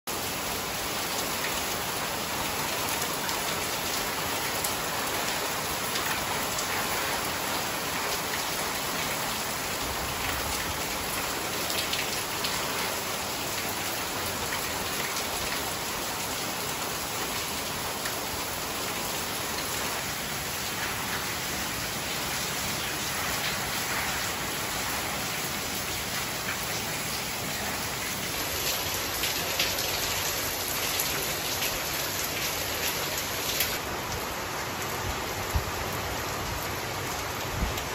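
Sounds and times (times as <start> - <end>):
heavy rain on leaves: 0.1 - 37.9.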